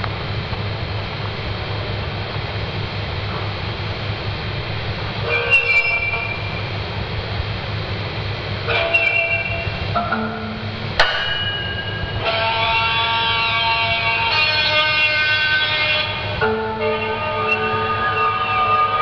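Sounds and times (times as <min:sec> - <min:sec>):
hissing drone with low hum: 0:00.0 - 0:19.0
held ringing tones: 0:05.3 - 0:06.8, 0:08.7 - 0:13.4
sharp hit: 0:09.0 - 0:12.9.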